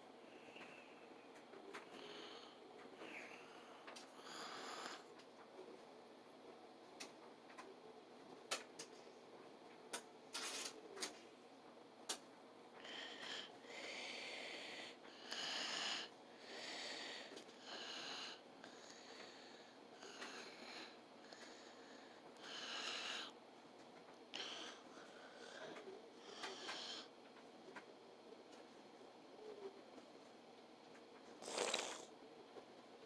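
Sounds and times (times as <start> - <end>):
person breathing heavily: 1.7 - 5.1, 12.8 - 23.4, 24.3 - 27.1.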